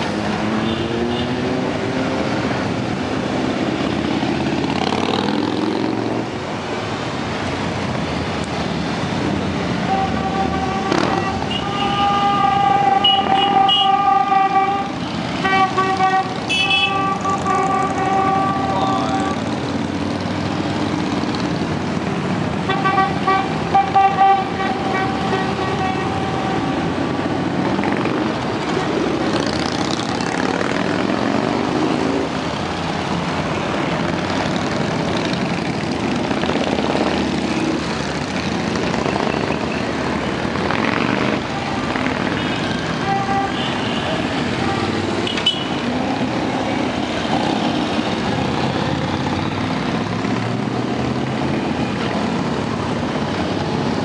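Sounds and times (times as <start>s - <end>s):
motorcycles riding past: 0.0s - 6.4s, 26.6s - 43.0s
horn tooting: 9.8s - 19.5s, 22.6s - 27.0s, 41.4s - 45.9s.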